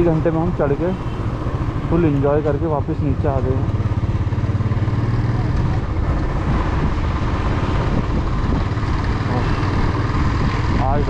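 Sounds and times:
motorcycle engine running: 0.0s - 11.0s
road noise: 0.0s - 11.0s
rushing wind: 3.1s - 11.0s.

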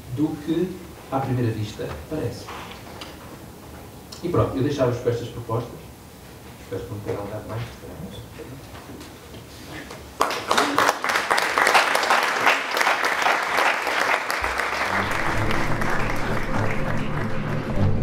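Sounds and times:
audience applauding: 10.2s - 18.0s
closing music: 14.4s - 18.0s.

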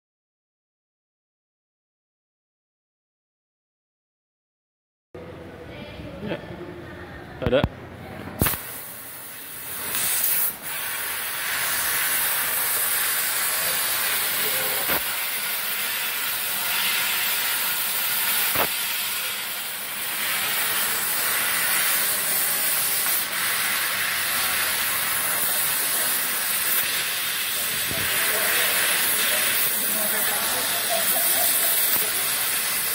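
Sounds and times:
short sharp clicks: 8.4s - 8.7s
laser cutter gas jet hissing: 8.4s - 32.9s.

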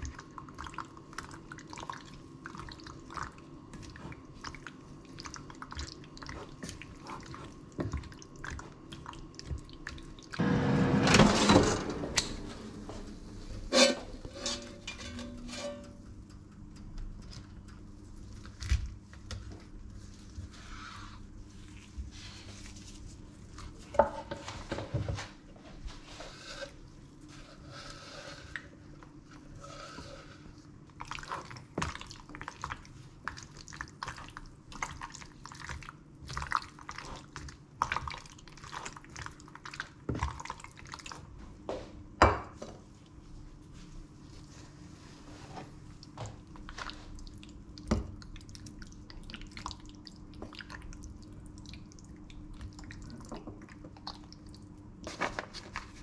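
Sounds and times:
spoon scraping pasta in pan: 13.6s - 16.1s
utensils clinking: 13.7s - 16.1s.

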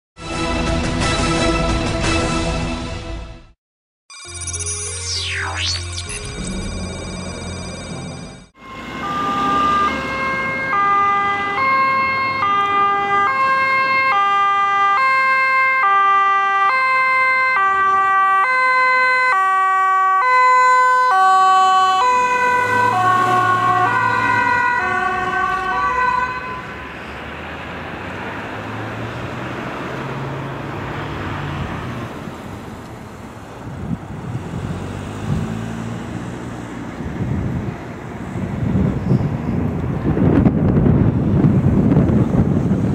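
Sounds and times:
two-tone ambulance siren: 5.0s - 27.3s
road and traffic noise: 5.1s - 42.9s.

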